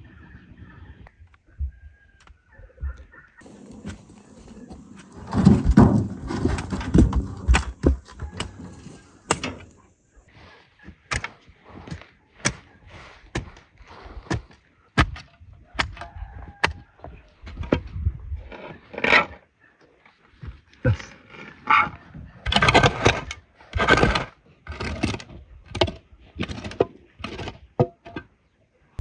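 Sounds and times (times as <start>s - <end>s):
shovel digging soil: 10.8s - 16.0s, 20.9s - 27.6s.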